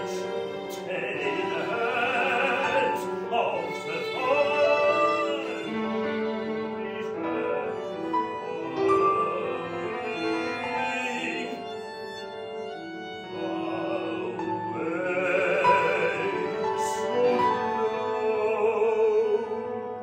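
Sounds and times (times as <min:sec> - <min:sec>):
operatic singing voice: 0:00.0 - 0:12.2, 0:13.0 - 0:19.8.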